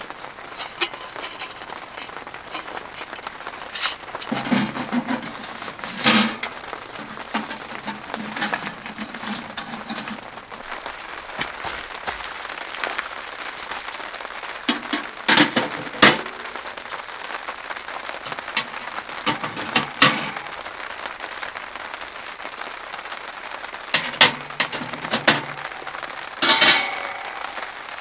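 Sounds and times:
rain pattering on tent fabric: 0.0s - 28.0s
metal clanks and clinks: 0.6s - 10.2s, 26.4s - 27.7s.

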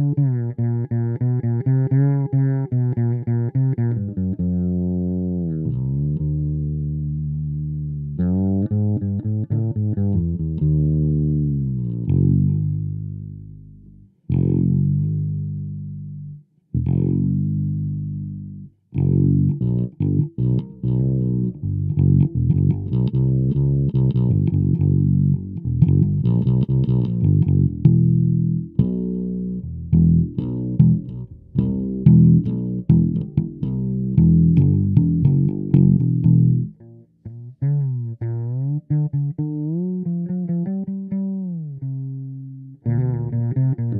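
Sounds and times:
fretless electric bass: 0.0s - 43.9s.

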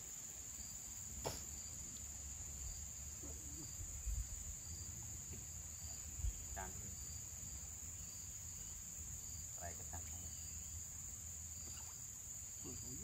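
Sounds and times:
insects droning: 0.0s - 13.0s
faint chirp: 11.6s - 13.0s.

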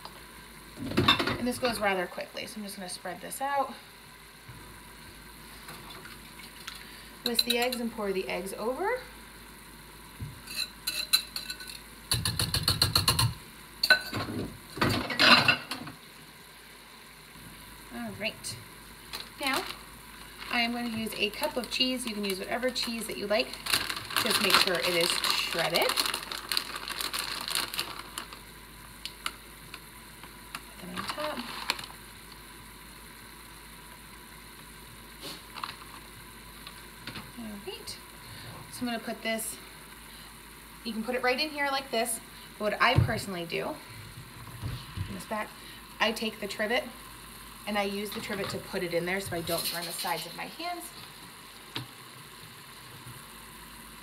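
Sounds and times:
plastic bag crinkling: 19.1s - 32.1s.

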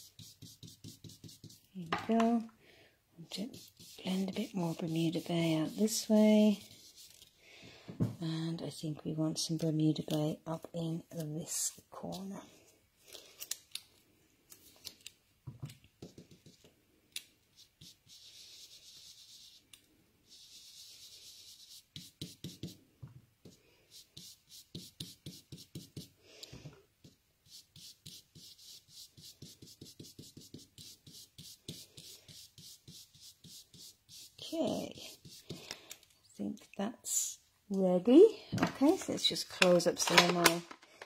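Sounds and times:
brush scratching on card: 0.0s - 1.7s, 3.3s - 7.3s, 17.5s - 22.8s, 23.9s - 26.2s, 27.4s - 35.6s.

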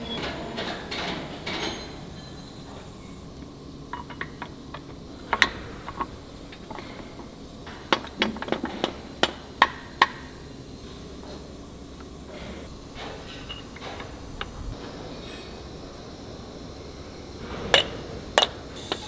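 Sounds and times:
steel parts clanking: 0.0s - 9.4s, 12.3s - 15.8s, 17.6s - 19.0s.

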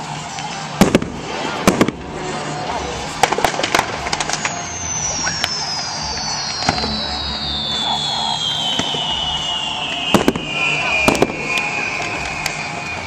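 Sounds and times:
firework bangs: 0.7s - 13.0s
firework whistle falling: 3.3s - 13.0s.

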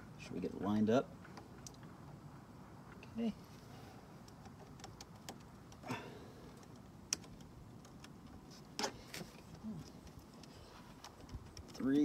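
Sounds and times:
faint clicks and taps: 6.5s - 12.0s.

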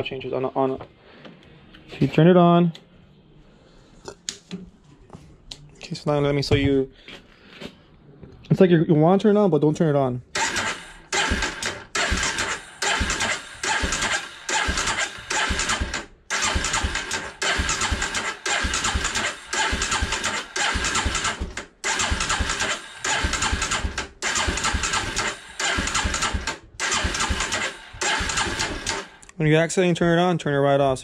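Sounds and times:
electric starter cranking engine: 10.3s - 29.3s.

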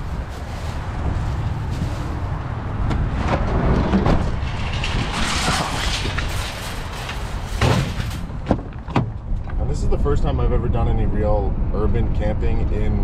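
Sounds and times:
plastic bags rustling: 0.0s - 2.4s
wind buffeting microphone: 0.0s - 6.5s.

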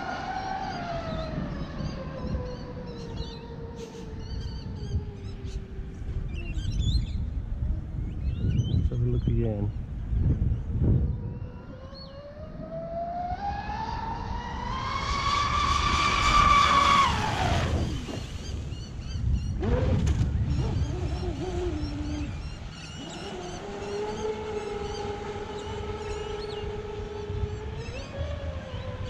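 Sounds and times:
electric motor whining: 19.6s - 29.0s.

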